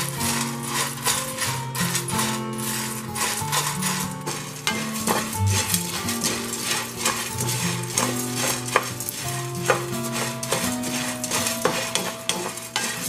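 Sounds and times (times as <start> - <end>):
seeds rattling in frying pan: 0.0 - 13.0
soft background music: 0.0 - 13.0.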